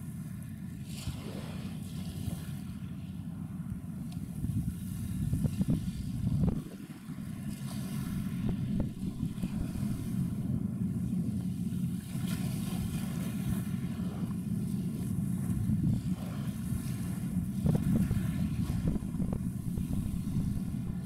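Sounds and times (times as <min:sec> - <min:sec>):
diesel engines rumbling: 0:03.6 - 0:21.0
wind buffeting microphone: 0:04.2 - 0:21.0.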